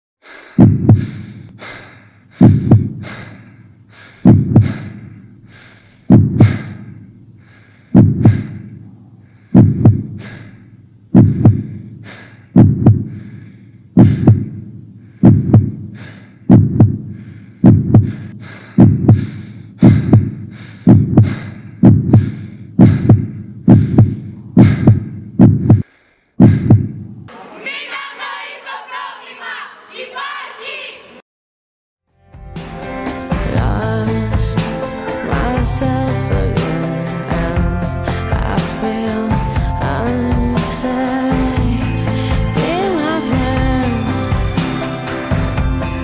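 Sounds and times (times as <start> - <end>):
heartbeat double thumps: 0.6 - 1.4, 2.3 - 3.3, 4.2 - 5.0, 6.0 - 6.9, 7.9 - 8.7, 9.5 - 10.3, 11.1 - 11.9, 12.5 - 13.2, 14.0 - 27.3.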